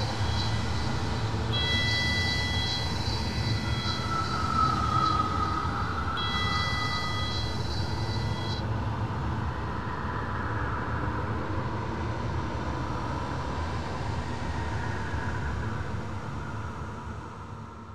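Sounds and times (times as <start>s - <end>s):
thin high tones: 0.0s - 8.6s
noisy synthesised drone: 0.0s - 8.9s.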